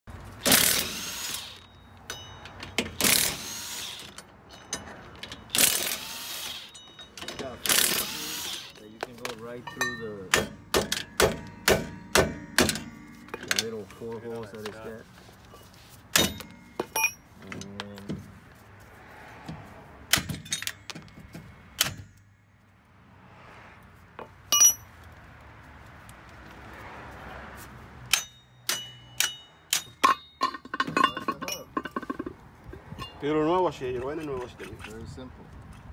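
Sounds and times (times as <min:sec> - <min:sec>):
impact wrench hammering: 0:00.4 - 0:13.8, 0:16.1 - 0:17.2, 0:20.1 - 0:22.2, 0:24.5 - 0:24.9, 0:28.1 - 0:32.4.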